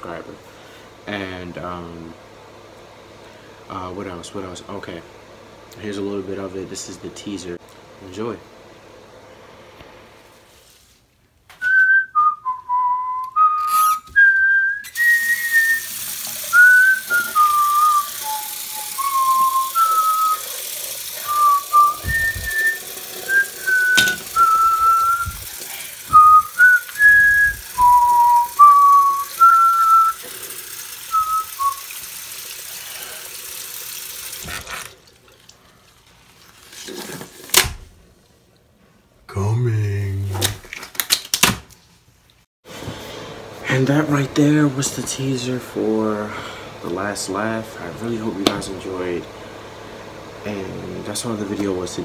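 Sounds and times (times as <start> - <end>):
person whistling a tune: 11.6 - 20.5, 21.2 - 25.4, 26.1 - 30.3, 31.1 - 31.9.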